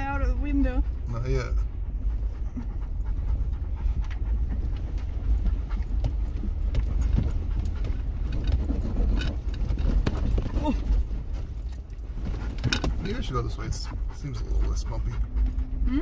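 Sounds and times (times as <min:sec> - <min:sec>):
dog panting: 0:00.0 - 0:16.0
vehicle rumbling over bumpy trail: 0:00.0 - 0:16.0
small rattles and knocks: 0:03.0 - 0:15.7.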